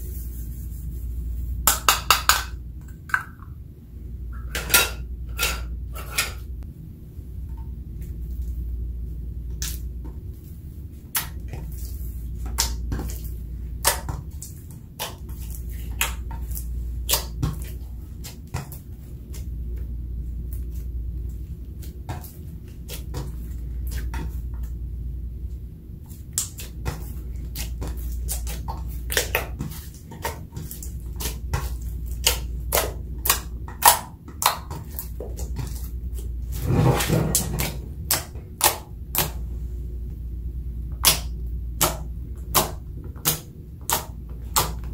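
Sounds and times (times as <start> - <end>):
steady low hum: 0.0 - 44.9
slime squelch: 7.8 - 44.9
slime clicking and popping: 41.0 - 44.9.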